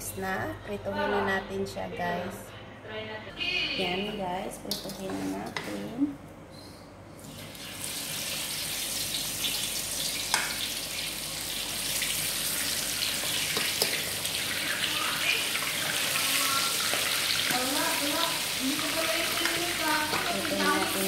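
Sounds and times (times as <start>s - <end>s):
fish sizzling in hot oil: 7.3s - 21.0s.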